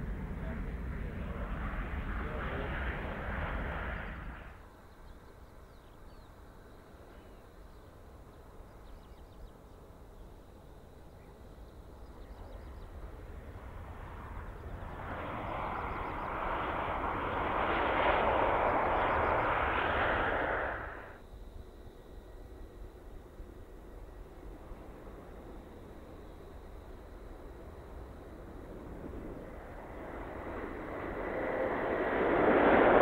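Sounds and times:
jet engines roaring: 0:00.0 - 0:04.6, 0:11.8 - 0:21.2, 0:24.0 - 0:33.0
faint bird chirps: 0:03.9 - 0:10.4, 0:11.0 - 0:13.3.

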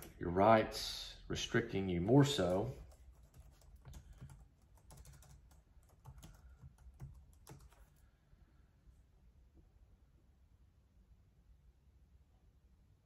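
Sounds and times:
typing on computer keyboard: 0:02.6 - 0:08.0.

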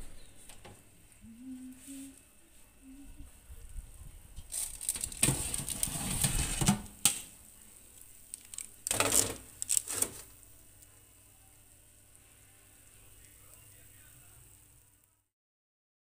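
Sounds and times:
metal baking tray scraping: 0:04.5 - 0:06.9, 0:08.9 - 0:10.3
tray rattling: 0:04.5 - 0:07.0, 0:08.4 - 0:10.3
tray clacking: 0:04.5 - 0:07.2.

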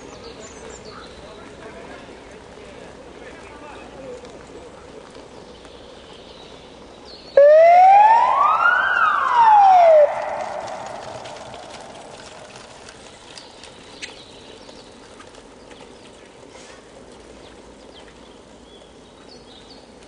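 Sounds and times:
birds chirping: 0:00.0 - 0:02.1, 0:03.7 - 0:16.5
bikes rattling over cobbles: 0:00.0 - 0:07.4, 0:08.6 - 0:20.0.

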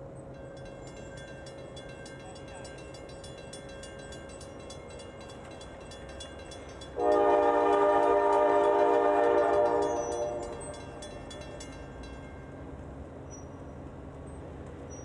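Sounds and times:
crossing bell ringing: 0:00.1 - 0:13.7
train air horn chord: 0:07.0 - 0:10.6.

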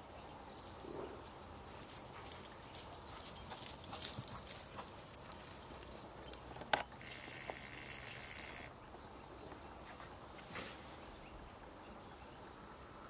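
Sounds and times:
dogs running through grass: 0:00.5 - 0:08.0.

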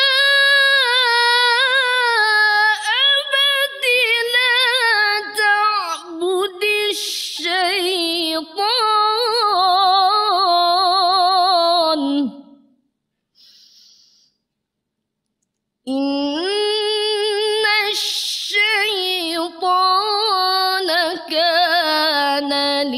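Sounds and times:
woman reciting melodically: 0:00.0 - 0:12.6, 0:15.9 - 0:22.9
woman taking a breath: 0:13.4 - 0:14.5.

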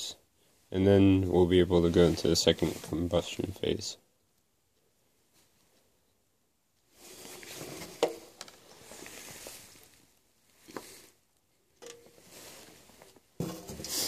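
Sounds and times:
pot handling rustle: 0:11.8 - 0:14.0.

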